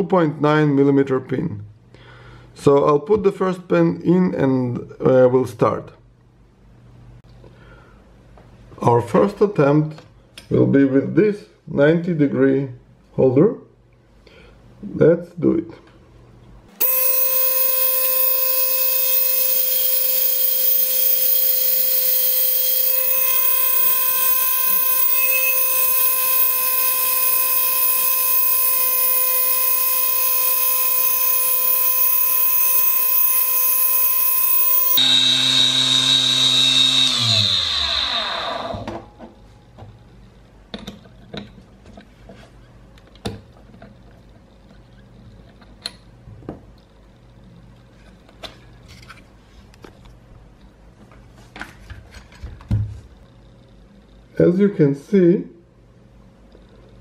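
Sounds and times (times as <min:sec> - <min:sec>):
drill bit boring into metal pin: 0:16.8 - 0:38.5
lathe motor whining: 0:16.8 - 0:38.6.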